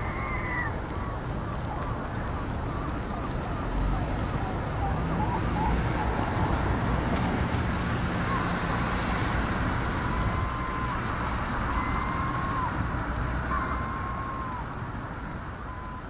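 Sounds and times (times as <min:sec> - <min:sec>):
distant traffic rumble: 0:00.0 - 0:16.0.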